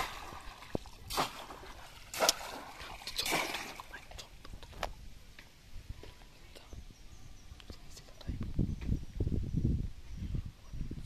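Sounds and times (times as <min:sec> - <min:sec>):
fish trap splashing in water: 0:00.0 - 0:04.0.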